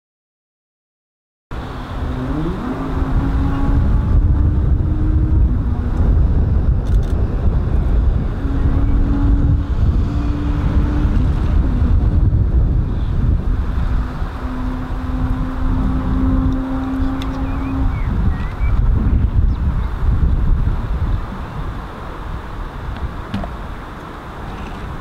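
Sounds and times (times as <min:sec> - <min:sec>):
heavy low rumble: 0:01.5 - 0:23.8
electric locomotive humming tones: 0:01.6 - 0:19.2.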